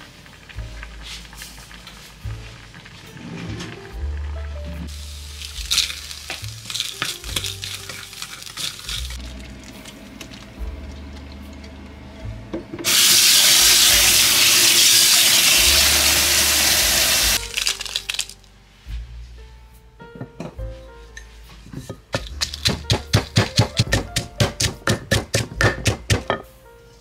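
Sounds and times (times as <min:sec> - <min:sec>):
garlic sizzling in oil: 0:00.0 - 0:04.1, 0:04.9 - 0:09.9, 0:12.8 - 0:18.3
oil crackling pops: 0:05.3 - 0:10.4, 0:17.2 - 0:18.4
water pouring into a sink: 0:12.9 - 0:18.2.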